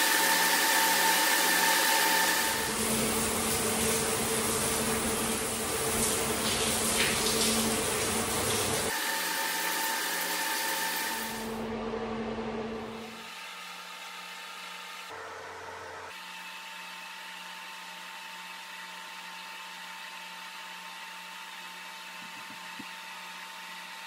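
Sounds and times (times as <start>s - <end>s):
shower water spraying: 2.2s - 11.4s.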